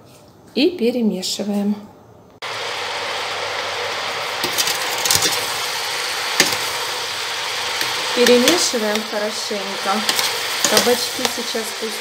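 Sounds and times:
sizzling hiss from pot: 2.4 - 12.0
metal spoon stirring vegetables: 4.4 - 12.0.

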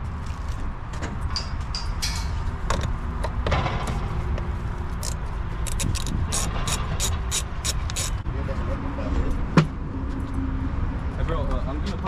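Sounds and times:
wrench clicking on metal nut: 5.0 - 8.2.

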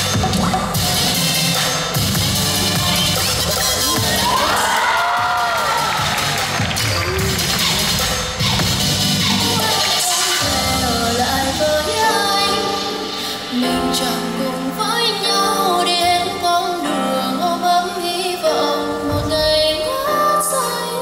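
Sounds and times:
instrumental backing track: 0.0 - 21.0
pop song with woman singing: 7.6 - 21.0.

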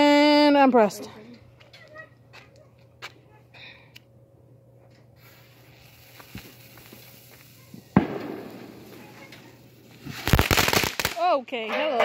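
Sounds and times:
fuse hissing: 5.1 - 10.4
firework hissing tail: 5.1 - 11.3
firework bang: 7.8 - 11.2.

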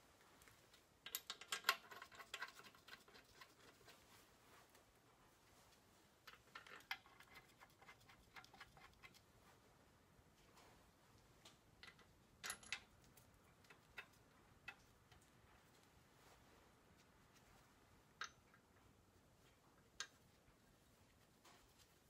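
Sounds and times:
clinks of hand tools and metal: 0.7 - 3.0, 11.8 - 15.2.

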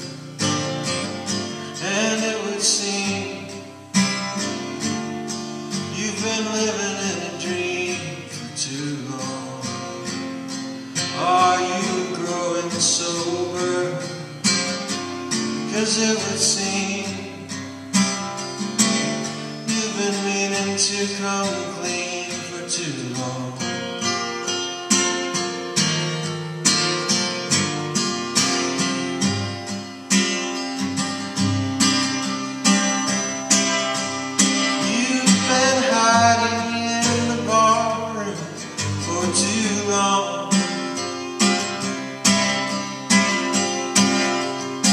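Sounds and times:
acoustic guitar: 0.0 - 44.9
man singing: 1.8 - 3.7, 5.8 - 10.2, 11.0 - 14.6, 15.5 - 17.6, 19.6 - 24.1, 34.7 - 41.5.

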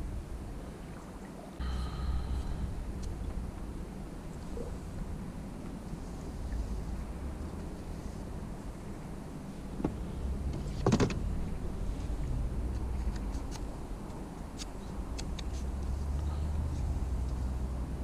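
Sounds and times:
steady low hum: 0.0 - 18.0
light ticks: 12.7 - 17.5.

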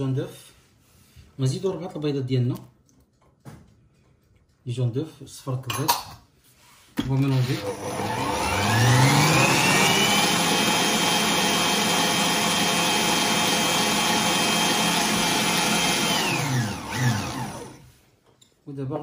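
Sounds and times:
electric stand mixer whining: 7.0 - 17.9.

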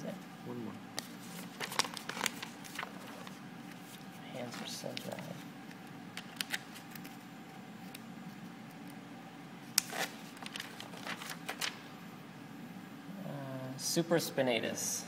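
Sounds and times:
steady room hum: 0.0 - 15.0.

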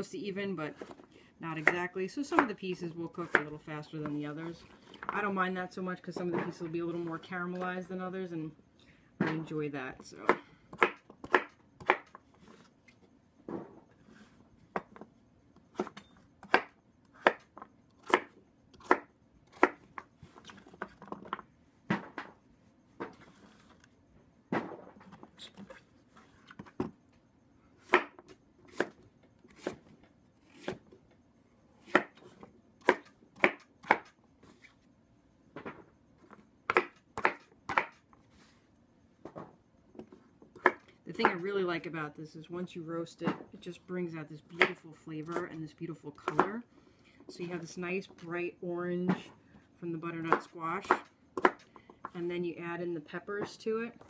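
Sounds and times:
knife chopping on wooden board: 50.3 - 51.6.

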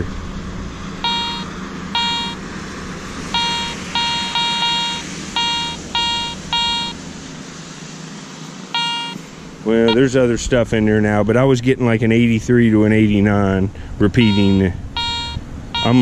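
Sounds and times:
metal detector beeping: 1.0 - 2.4, 3.3 - 7.0, 8.7 - 9.2, 9.8 - 10.1, 14.2 - 16.0.

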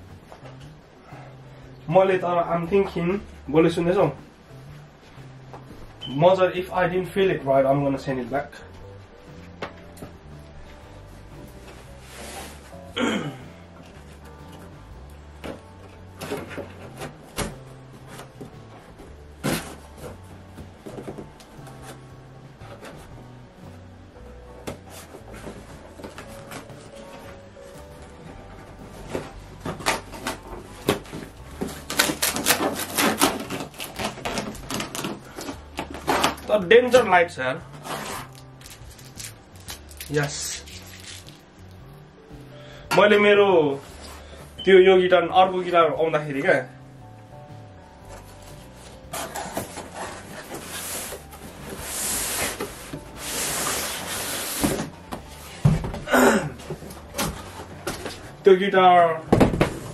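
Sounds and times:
cardboard scraping against cardboard: 11.7 - 12.9, 28.7 - 36.6, 37.7 - 38.5, 48.1 - 55.7
cardboard box tearing: 29.1 - 36.5, 37.8 - 38.5
box dull thump: 59.3 - 59.9.

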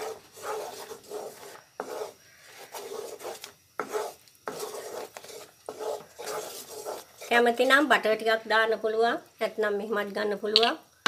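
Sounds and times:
wooden spoon scraping metal pot: 0.0 - 7.9.

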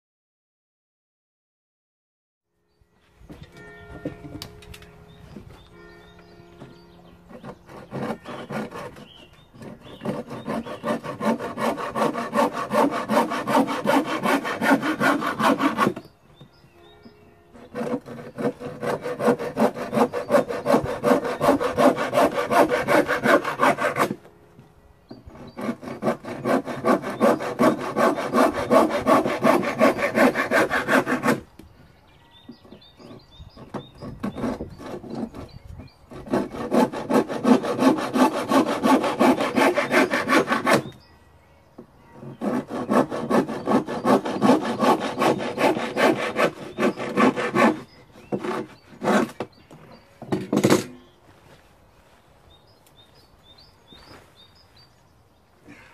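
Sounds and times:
hand saw cutting wood: 7.3 - 16.1, 17.6 - 24.2, 25.2 - 31.5, 32.7 - 41.0, 42.2 - 50.9.

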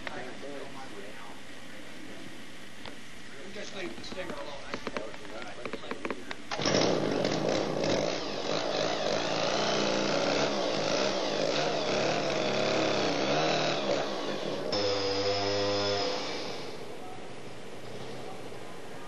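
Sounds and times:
chainsaw cutting tree trunk: 6.5 - 16.8.

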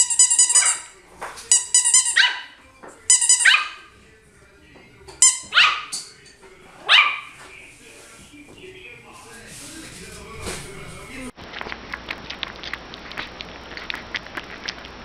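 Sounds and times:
squeaky toy squeaking: 0.0 - 3.8, 5.2 - 6.0
puppy yapping: 1.9 - 2.6, 3.2 - 3.9, 5.2 - 6.0, 6.8 - 7.4.

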